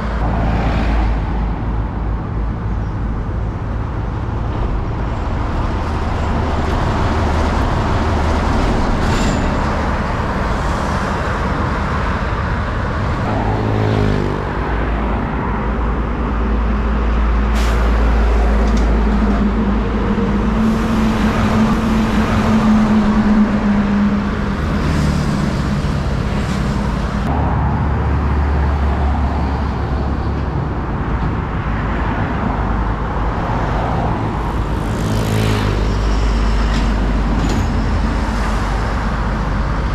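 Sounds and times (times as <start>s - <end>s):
trucks passing: 0.0s - 39.9s
motorbikes passing: 11.0s - 16.4s, 33.9s - 37.3s.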